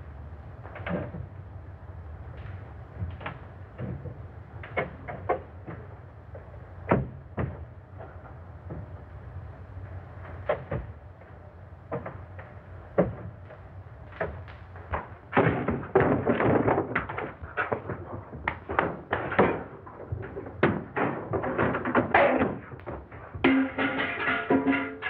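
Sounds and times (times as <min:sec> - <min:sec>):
irregular knocks and thuds: 0:02.3 - 0:09.1, 0:10.2 - 0:25.0.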